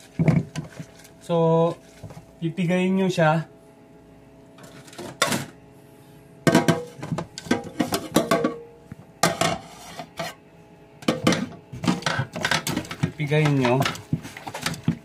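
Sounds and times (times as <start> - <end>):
metal pot clattering: 6.5 - 8.6, 11.0 - 15.0.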